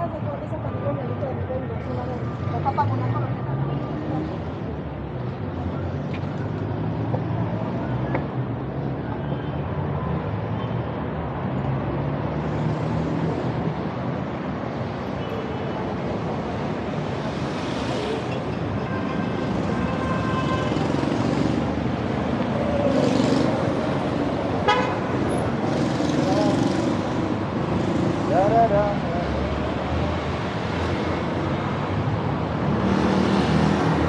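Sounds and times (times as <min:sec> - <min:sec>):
cars passing: 0:00.0 - 0:34.0
car horn toots: 0:24.6 - 0:25.0.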